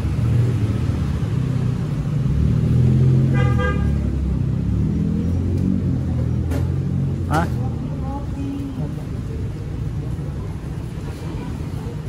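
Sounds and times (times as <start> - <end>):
road traffic rumble: 0.0 - 12.0
vehicle horn toot: 3.3 - 4.0.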